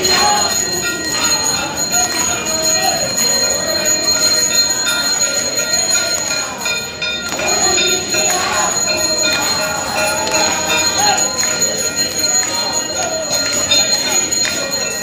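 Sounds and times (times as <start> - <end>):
crowd voices: 0.0 - 15.0
temple bells ringing: 0.0 - 15.0.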